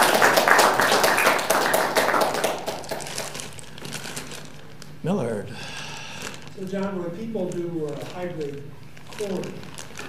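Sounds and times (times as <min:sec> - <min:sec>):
audience applauding: 0:00.0 - 0:03.5.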